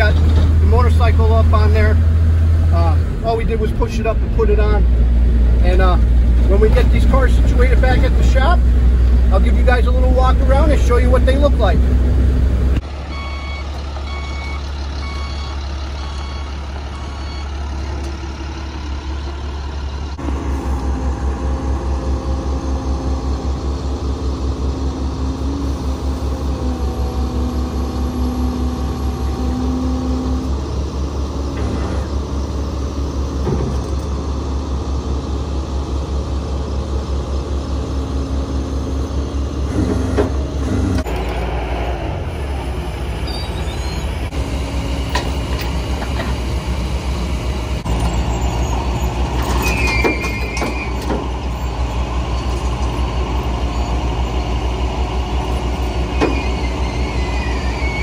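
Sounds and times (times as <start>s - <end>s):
truck engine idling: 0.0s - 58.0s
backup alarm beeping: 13.1s - 17.5s
hydraulic whine: 20.2s - 34.4s, 39.0s - 58.0s.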